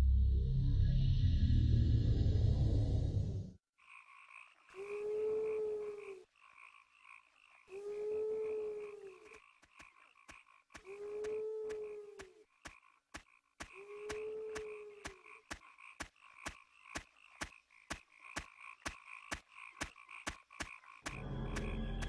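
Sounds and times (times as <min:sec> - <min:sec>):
frogs croaking: 0:03.8 - 0:22.0
long low frog call: 0:03.8 - 0:22.0
music: 0:21.1 - 0:22.0.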